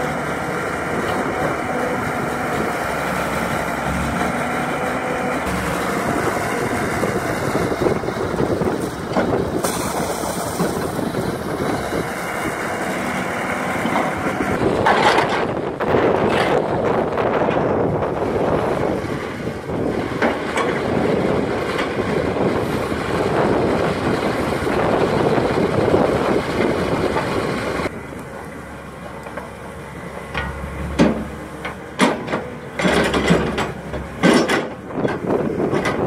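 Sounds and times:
excavator engine drone: 0.0 - 36.0
wind buffeting microphone: 5.4 - 27.9, 33.1 - 36.0
metal clanks and knocks: 14.8 - 15.5, 30.2 - 36.0.

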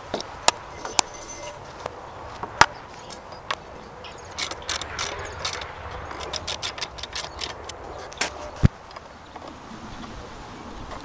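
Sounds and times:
metal hardware clicking: 4.0 - 8.4.

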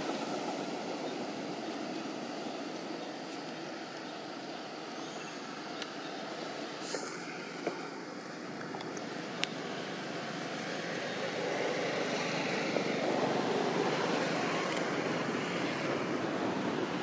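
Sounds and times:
outdoor rushing noise: 9.0 - 17.0.

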